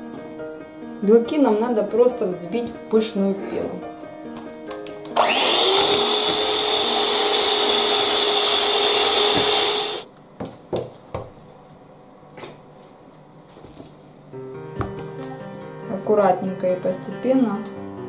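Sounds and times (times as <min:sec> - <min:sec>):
electric hand mixer whine: 0:05.2 - 0:10.1.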